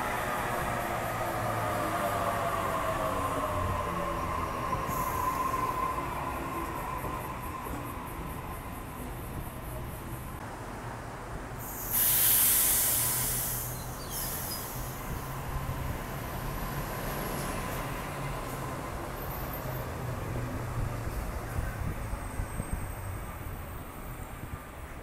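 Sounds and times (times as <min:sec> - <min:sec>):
electric train rumbling past: 0:00.0 - 0:10.4, 0:11.4 - 0:25.0
air hiss: 0:11.6 - 0:15.2.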